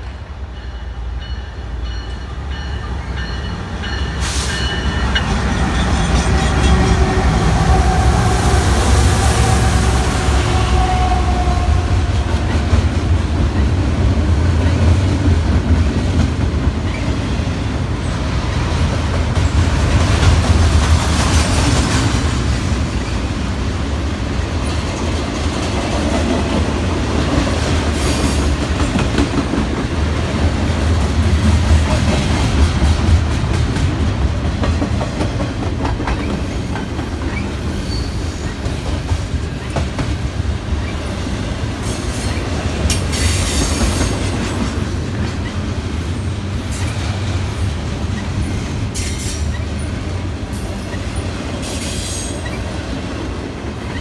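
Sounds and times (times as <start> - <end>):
freight train wheels rumbling and clacking: 0.0 - 54.0
high wheel squeals: 37.3 - 38.6.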